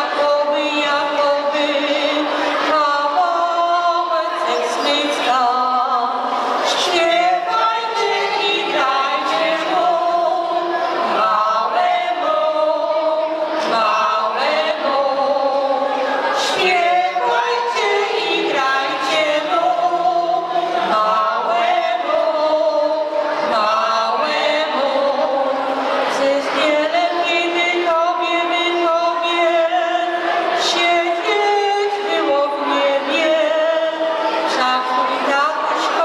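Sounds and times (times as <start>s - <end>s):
choir singing a carol: 0.0s - 36.0s.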